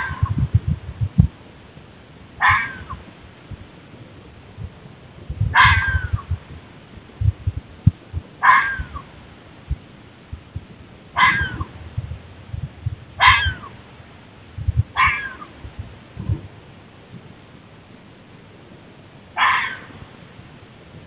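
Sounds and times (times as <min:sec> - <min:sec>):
fox barking: 0:00.0 - 0:00.4, 0:02.4 - 0:03.0, 0:05.5 - 0:06.3, 0:08.4 - 0:09.1, 0:11.1 - 0:11.7, 0:13.2 - 0:13.8, 0:14.9 - 0:15.6, 0:19.4 - 0:20.0
low thumps: 0:00.0 - 0:01.4, 0:04.6 - 0:09.0, 0:09.7 - 0:13.4, 0:14.6 - 0:15.0, 0:15.6 - 0:16.6.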